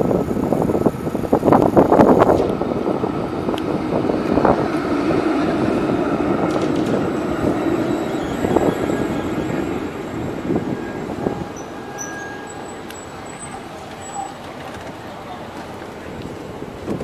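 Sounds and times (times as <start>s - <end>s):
tram running drone: 0.0s - 17.0s
tram wheels clattering on rails: 0.0s - 17.0s
brief high tone: 7.8s - 14.5s.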